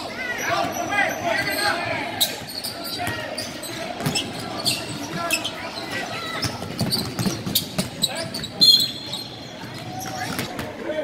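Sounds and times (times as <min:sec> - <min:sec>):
sneakers squeaking: 0:00.0 - 0:11.0
sharp high squeal: 0:07.6 - 0:09.5.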